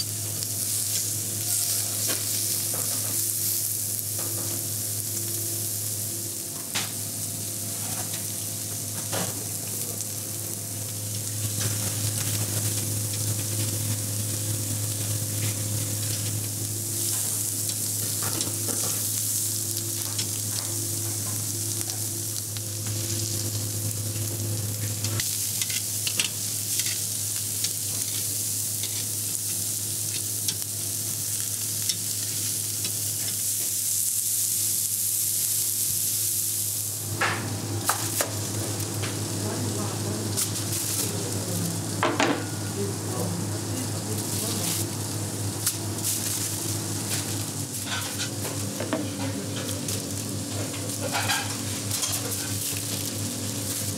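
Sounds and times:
meat sizzling on grill: 0.0s - 53.9s
steady low hum: 0.0s - 53.9s.

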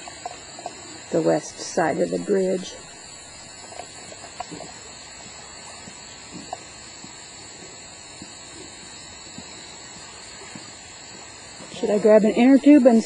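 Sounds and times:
insects droning: 0.0s - 13.0s.

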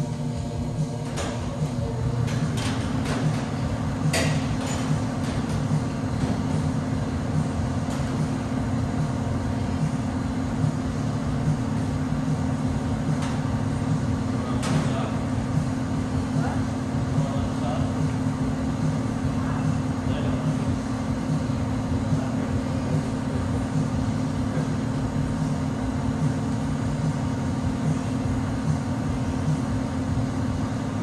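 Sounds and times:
low machine hum: 0.0s - 31.0s
sharp knocks and clanks: 1.0s - 6.6s.

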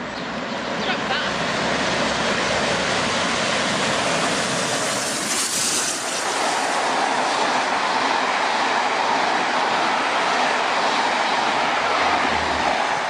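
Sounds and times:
train rushing past: 0.3s - 13.0s
roar of blowing steam: 10.8s - 13.0s
coaches rumbling past: 11.4s - 13.0s.

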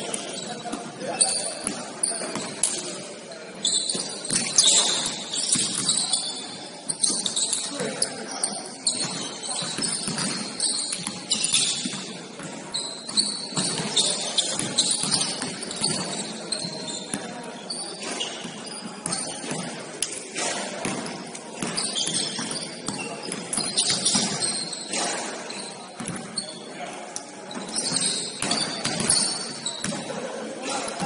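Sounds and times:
players' voices: 0.0s - 31.0s
sneaker squeaks: 0.0s - 31.0s
basketball bouncing on court: 8.9s - 17.3s, 20.5s - 24.7s, 26.0s - 26.4s, 27.5s - 30.1s.

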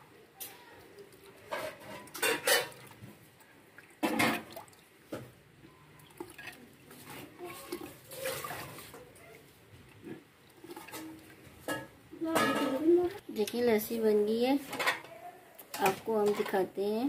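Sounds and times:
hand sloshing in buttermilk: 6.1s - 9.1s.

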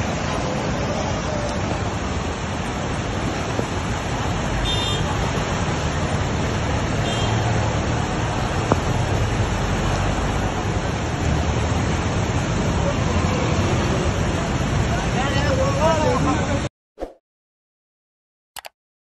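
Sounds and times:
flood torrent roaring: 0.0s - 16.7s.

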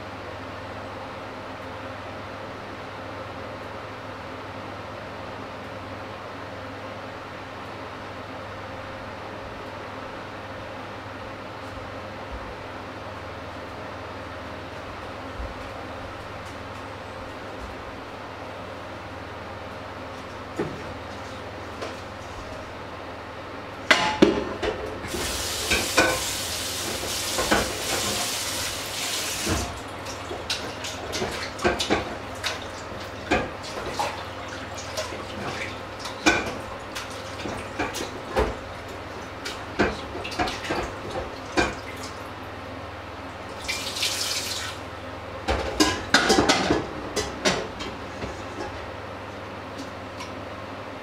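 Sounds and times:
tap water running: 25.0s - 42.4s, 43.5s - 44.9s
pots and dishes clanking: 45.5s - 48.9s.

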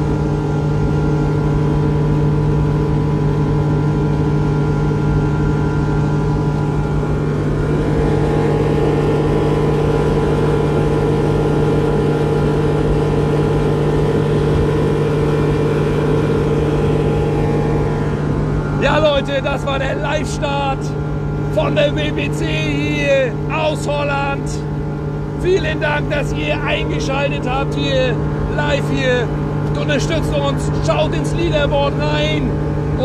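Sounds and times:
outboard motor droning: 0.0s - 33.0s
water rushing from wake: 0.0s - 33.0s.

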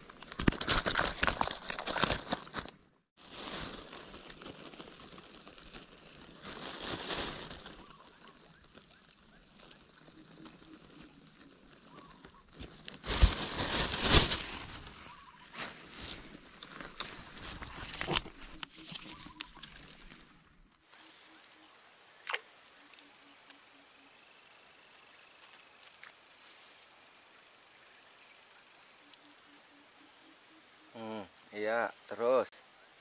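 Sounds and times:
high-pitched insect chorus: 3.4s - 33.0s
small plop in water: 22.2s - 22.5s.

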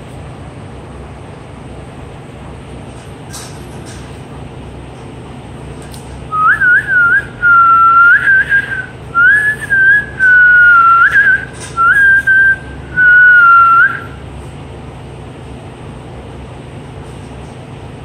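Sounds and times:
person whistling: 6.3s - 14.2s.

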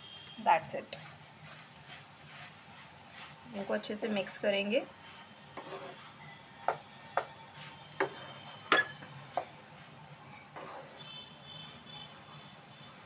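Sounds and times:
spatula scraping and knocking on wok: 5.5s - 9.6s, 10.6s - 11.2s.

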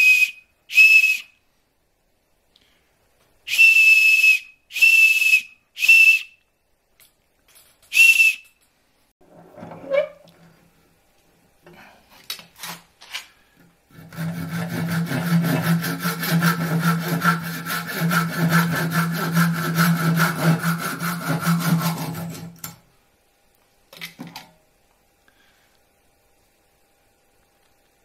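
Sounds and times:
handsaw cutting wood: 13.9s - 22.7s.

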